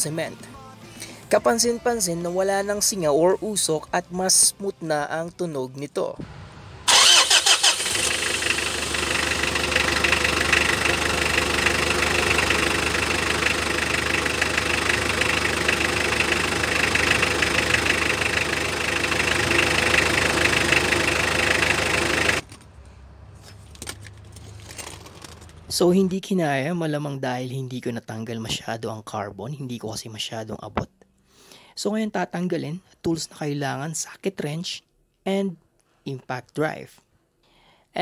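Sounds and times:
diesel engine idling: 6.2s - 24.3s.

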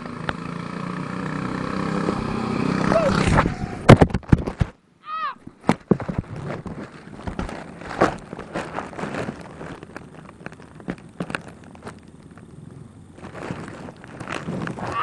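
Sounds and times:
rustling in grass: 5.9s - 15.0s.

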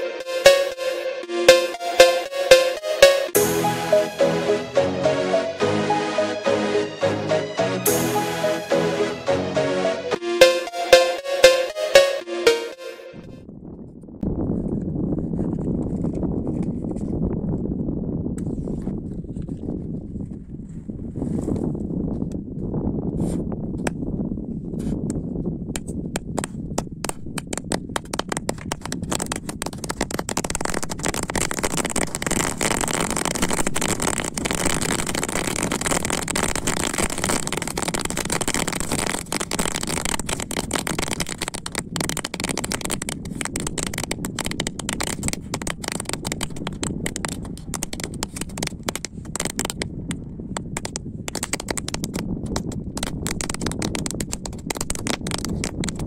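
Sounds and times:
firecrackers crackling: 27.5s - 49.8s.

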